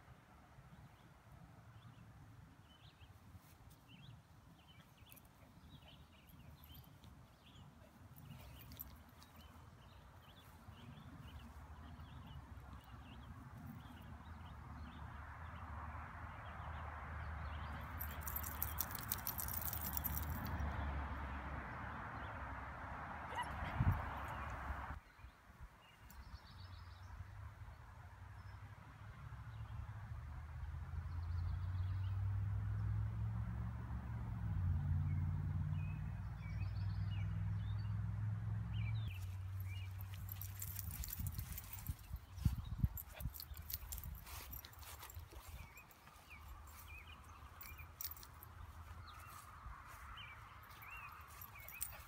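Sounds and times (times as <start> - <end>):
soft rustle: 6.3 - 10.7, 39.2 - 50.0.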